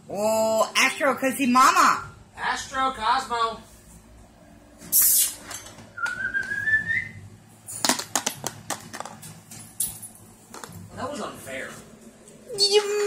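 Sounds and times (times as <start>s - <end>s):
short loud hiss: 4.9s - 5.4s.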